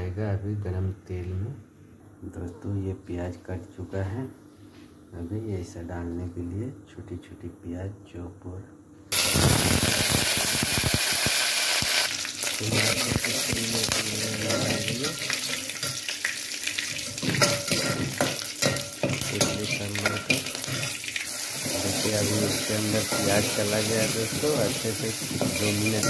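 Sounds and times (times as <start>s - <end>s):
spluttering crackles: 9.1s - 11.6s
hot oil sizzling: 9.1s - 26.0s
metal spoon stirring in pot: 14.4s - 26.0s.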